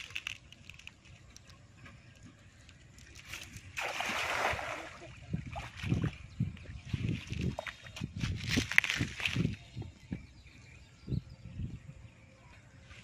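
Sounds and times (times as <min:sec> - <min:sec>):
river water sloshing: 0:00.0 - 0:09.5
loud water splash: 0:03.8 - 0:05.9.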